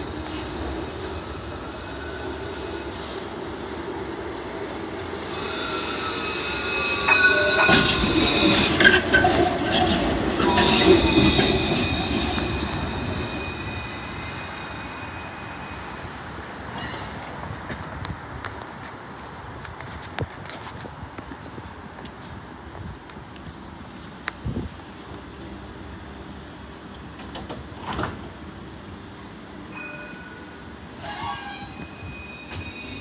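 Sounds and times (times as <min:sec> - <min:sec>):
tram rumbling past: 0:00.0 - 0:33.0
high-pitched tram squeal: 0:04.9 - 0:17.6, 0:29.7 - 0:33.0.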